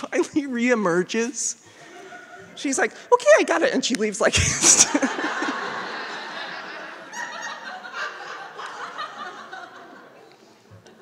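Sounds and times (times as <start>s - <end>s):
audience laughing: 1.7s - 2.6s, 4.6s - 11.0s.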